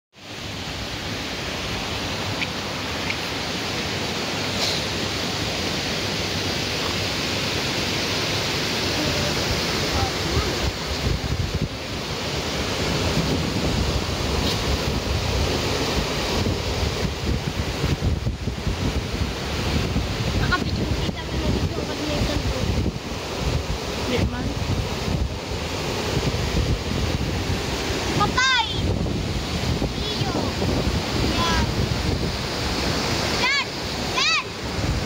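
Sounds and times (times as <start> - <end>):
stream rushing over weir: 0.2 - 35.0
wind buffeting microphone: 9.0 - 35.0.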